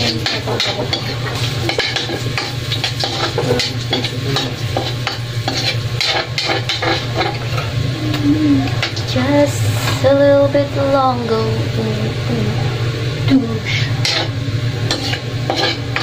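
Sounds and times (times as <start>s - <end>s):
utensil scraping and clicking on pan: 0.0s - 7.7s, 14.0s - 16.0s
food sizzling in frying pan: 0.0s - 16.0s.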